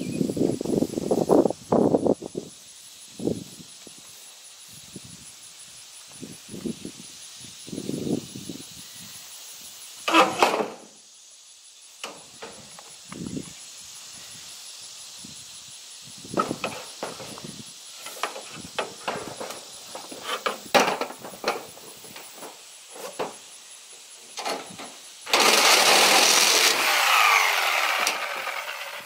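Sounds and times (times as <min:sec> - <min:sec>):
reciprocating saw cutting metal: 0:10.1 - 0:10.8, 0:25.2 - 0:29.0
knocks and clatter of metal: 0:18.0 - 0:23.4, 0:24.4 - 0:25.5.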